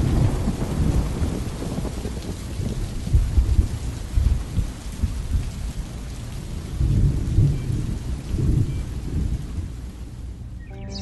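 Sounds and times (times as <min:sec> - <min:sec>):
thunder rumbling: 0:00.0 - 0:04.7
rain falling: 0:00.0 - 0:10.8.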